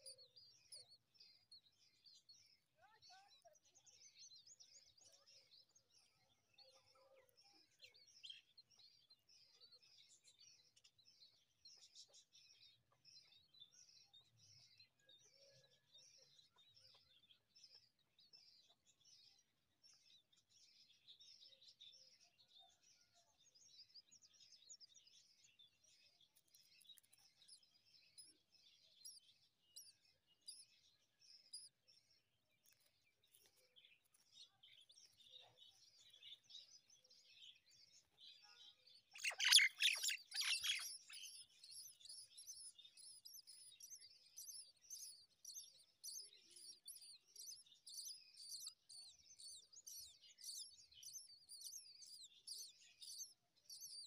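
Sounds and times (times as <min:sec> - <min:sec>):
nestlings chirping faintly: 0:00.0 - 0:54.0
chicks begging calls: 0:39.1 - 0:54.0.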